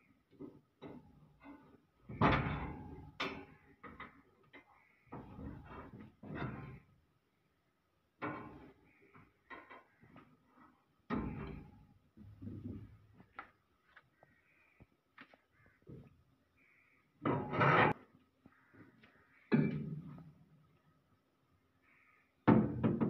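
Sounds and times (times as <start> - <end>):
steel parts clanking and scraping: 17.2 - 18.0.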